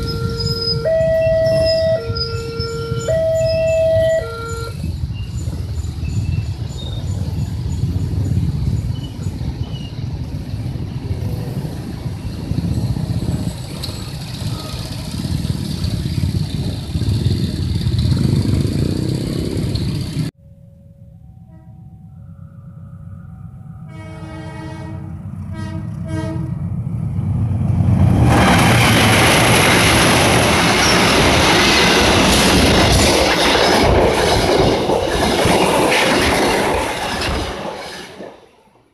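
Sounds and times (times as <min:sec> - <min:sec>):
level crossing warning alarm: 0:00.0 - 0:04.8
rumble of passing vehicles: 0:00.0 - 0:37.5.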